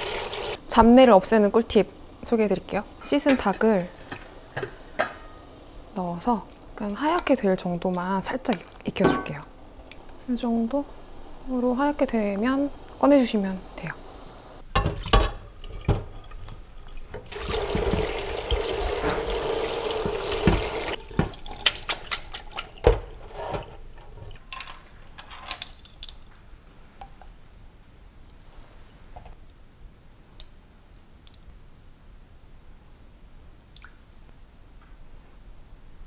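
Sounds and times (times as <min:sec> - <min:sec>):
water splashing into sink: 0:14.8 - 0:23.2
colander knocks and clatter: 0:17.1 - 0:19.4, 0:20.0 - 0:24.3.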